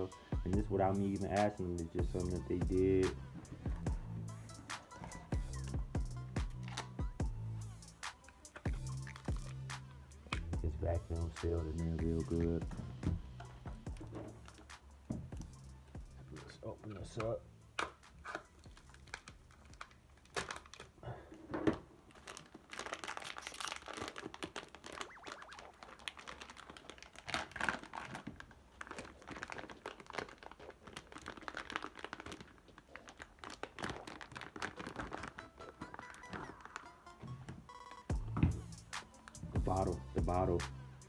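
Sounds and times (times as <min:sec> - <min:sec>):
plastic bag crinkling and tearing: 0:18.4 - 0:21.0, 0:22.0 - 0:36.9.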